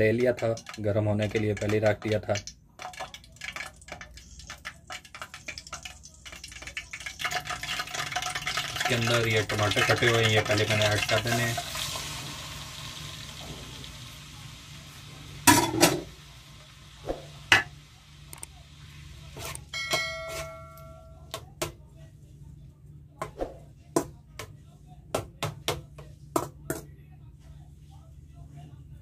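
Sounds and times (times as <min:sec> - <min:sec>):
tomatoes sizzling in hot oil: 0:04.1 - 0:19.4
metal spoon scraping a pan: 0:19.4 - 0:20.6.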